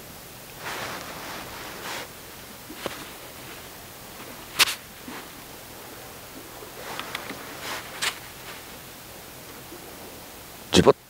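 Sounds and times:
jacket rustling: 0.6 - 8.8.

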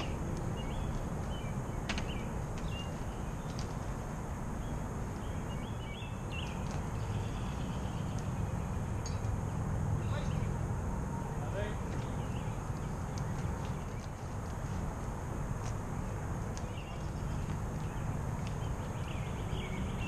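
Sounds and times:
small birds chirping: 0.0 - 10.6, 11.3 - 20.0.

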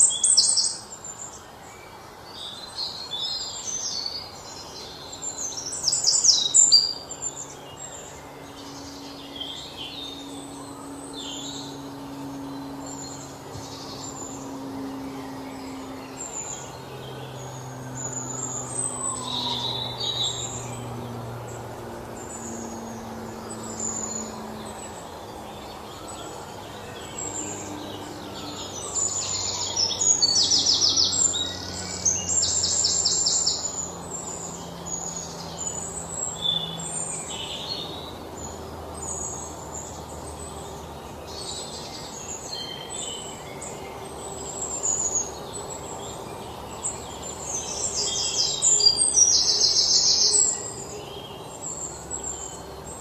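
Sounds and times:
birds chirping: 0.0 - 53.0
low hum: 6.1 - 42.2.

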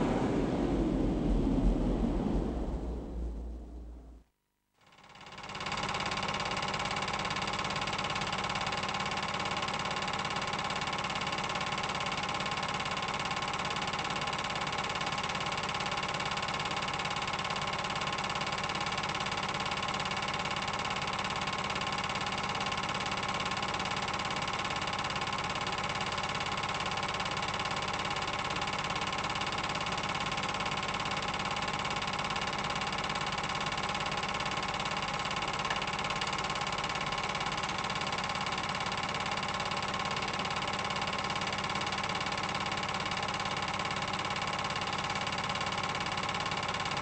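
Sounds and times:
film projector whirring: 19.2 - 46.9.

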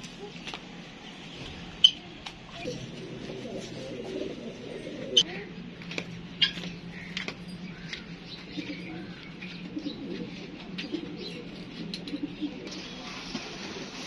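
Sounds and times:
pigeons cooing: 2.6 - 5.6, 6.3 - 14.0.

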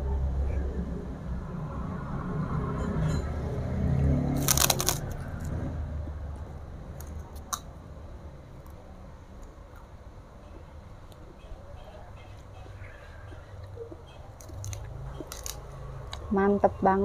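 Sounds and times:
crackers crunching: 4.3 - 5.6, 13.6 - 16.3.

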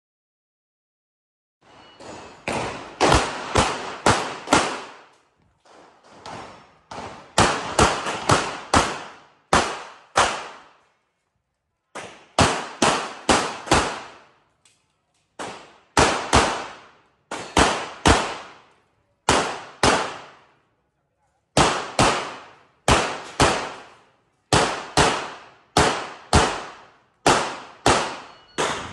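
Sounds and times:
pistol shots with echo: 2.5 - 5.1, 6.9 - 10.8, 12.0 - 14.4, 15.4 - 20.5, 21.5 - 28.9.

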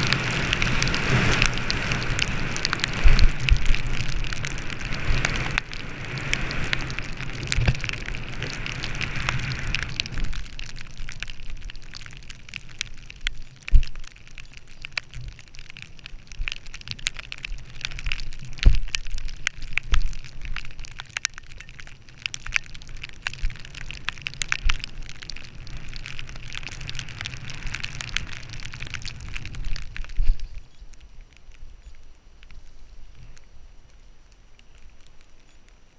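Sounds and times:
skis scraping over snow: 0.0 - 10.3.

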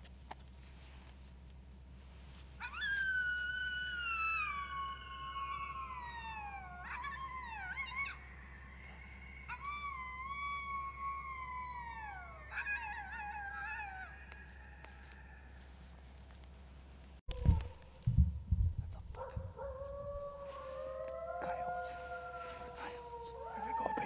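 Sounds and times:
coyote howling: 2.6 - 16.0, 17.3 - 18.1, 19.1 - 24.0.

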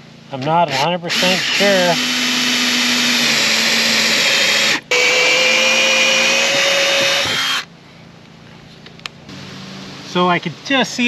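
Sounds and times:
cordless drill whining: 1.1 - 7.7.

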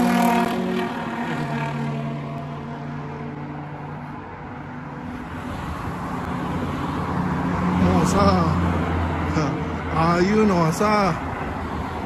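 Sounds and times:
car engine hum: 0.0 - 12.0
vehicle tyre and engine rumble: 0.0 - 12.0.

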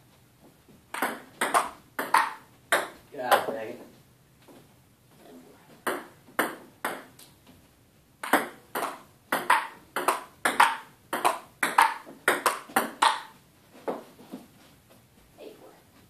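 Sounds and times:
table tennis ball clicking: 8.2 - 13.3.

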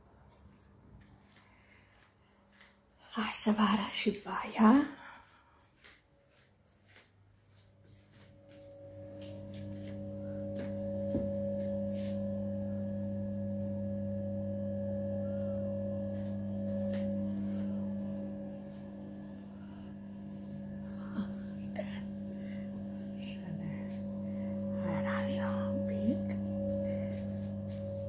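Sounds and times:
extractor fan humming: 8.2 - 28.0.

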